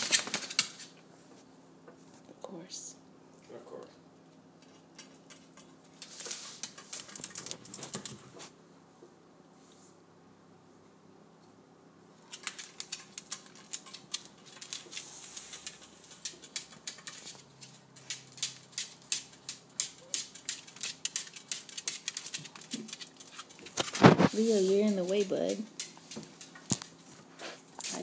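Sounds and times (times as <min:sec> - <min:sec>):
dog claws scratching on glass: 0:12.3 - 0:24.2.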